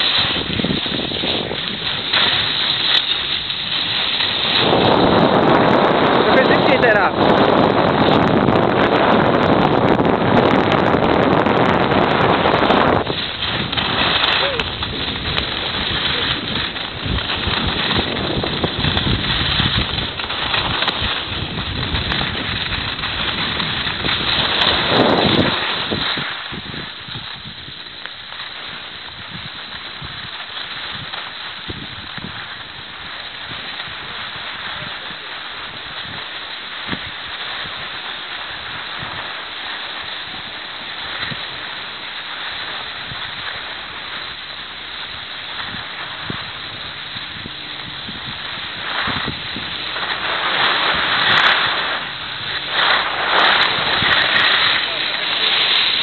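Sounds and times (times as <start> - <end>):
snowboard sliding on packed snow: 0.0 - 56.0
wind rushing over microphone: 0.0 - 56.0.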